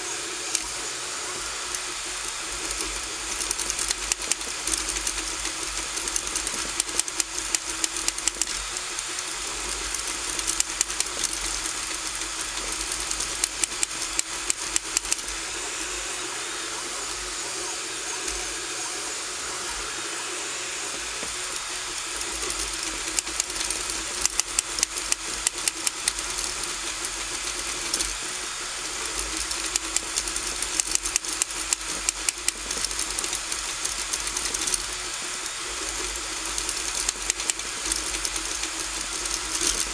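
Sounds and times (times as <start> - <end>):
printer hiss and hum: 0.0 - 39.9
stepper motors clicking ticks: 0.5 - 0.8, 1.4 - 15.5, 21.0 - 39.9.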